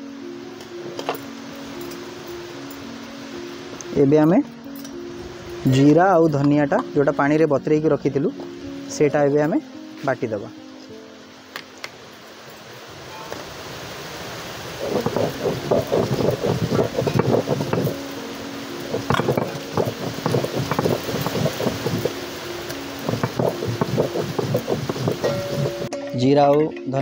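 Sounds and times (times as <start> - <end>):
stone roller grinding on stone slab: 14.7 - 18.1, 18.8 - 25.9.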